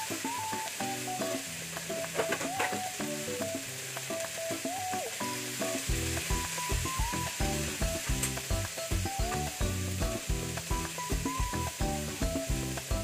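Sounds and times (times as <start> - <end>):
vegetables sizzling in a pan: 0.0 - 13.0
background music with bass beat: 5.8 - 13.0.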